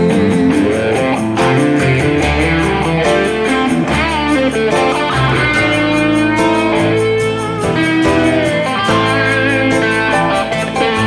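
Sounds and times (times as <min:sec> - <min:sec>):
electric guitar lead with bends: 0:00.0 - 0:11.0
rock band playing: 0:00.0 - 0:11.0.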